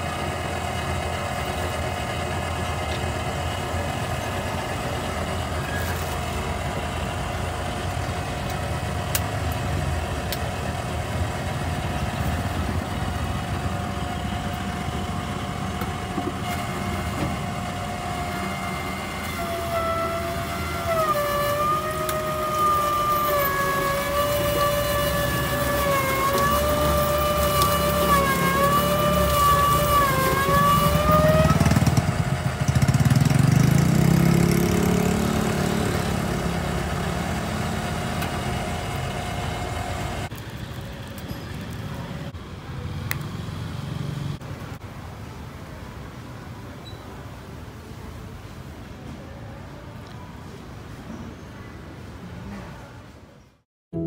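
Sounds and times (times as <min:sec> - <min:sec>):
sugarcane juicer motor whine: 0:00.0 - 0:42.0.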